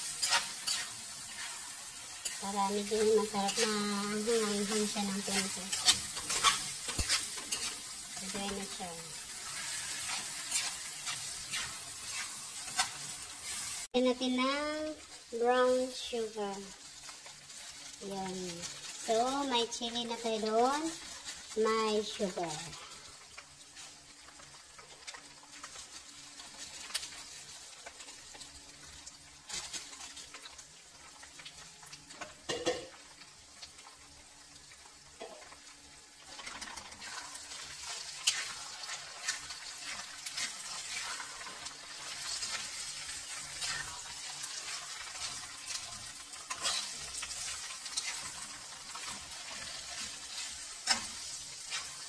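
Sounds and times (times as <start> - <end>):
metal spatula scraping: 0.0 - 13.9, 36.3 - 52.0
food sizzling in a wok: 0.0 - 52.0.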